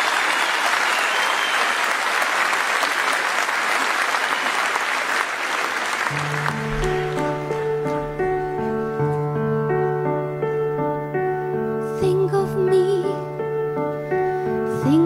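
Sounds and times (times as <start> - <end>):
audience applauding: 0.0 - 8.9.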